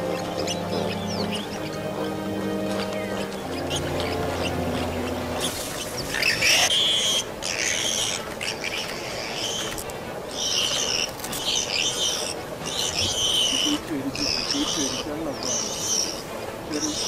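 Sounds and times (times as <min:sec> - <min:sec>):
high-pitched animal squeals: 0:03.5 - 0:16.2.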